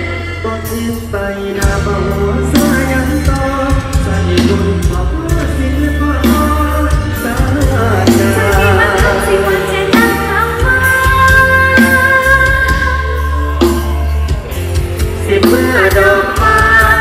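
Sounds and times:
live band music: 0.0s - 17.0s
person singing: 0.0s - 17.0s.

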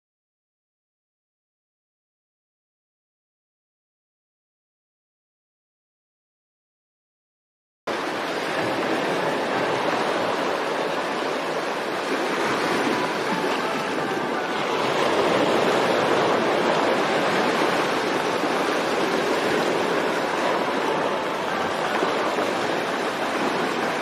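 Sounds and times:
running water rushing: 7.9s - 24.0s.

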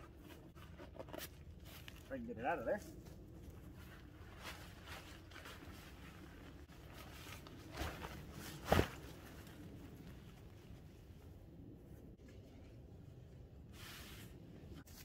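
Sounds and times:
tarp rustling and crinkling: 3.4s - 10.7s
tarp flapping: 4.2s - 9.6s.

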